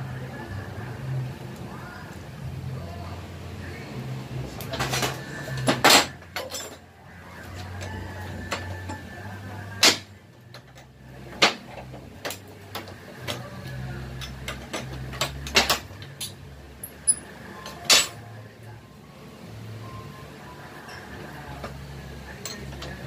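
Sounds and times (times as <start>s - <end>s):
metal knocks and clinks of tools: 4.7s - 6.8s, 14.2s - 18.2s.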